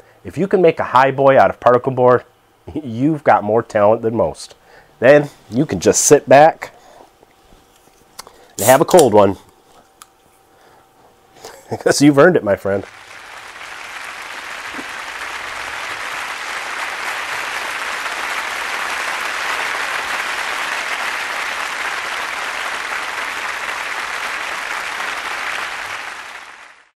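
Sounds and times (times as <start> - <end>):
audience applauding: 12.8 - 26.9.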